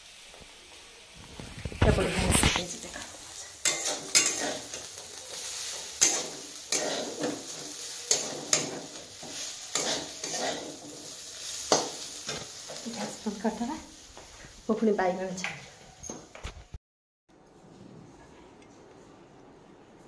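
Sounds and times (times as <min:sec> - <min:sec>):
faint sizzle: 0:00.0 - 0:16.0
steel ladle scraping a pan: 0:01.9 - 0:13.2.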